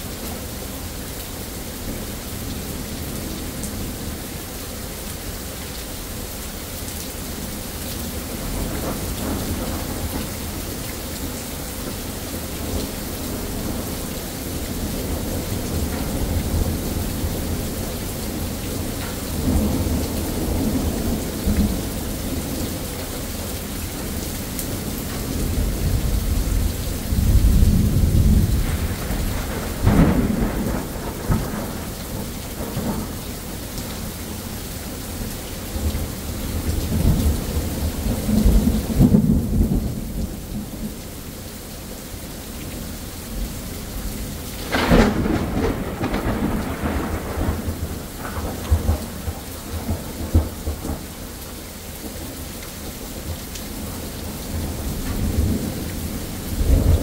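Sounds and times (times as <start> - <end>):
steady rain: 0.0 - 57.0
rolling thunder: 25.1 - 33.2, 44.6 - 51.1
sharp thunder crack: 44.6 - 49.0.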